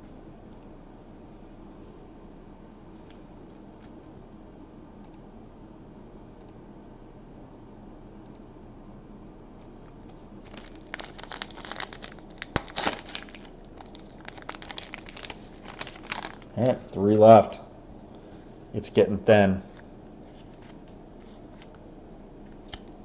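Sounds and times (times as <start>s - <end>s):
wrapper crinkling and tearing: 10.4s - 17.0s.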